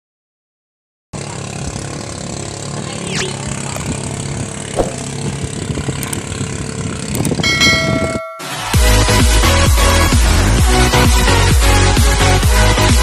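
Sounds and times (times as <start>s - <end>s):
racing boat engine: 1.2s - 8.1s.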